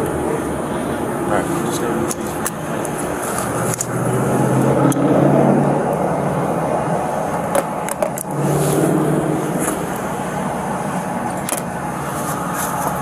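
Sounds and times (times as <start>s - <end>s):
car engine running: 0.0s - 13.0s
handling clicks and knocks: 7.5s - 8.3s, 11.2s - 11.7s.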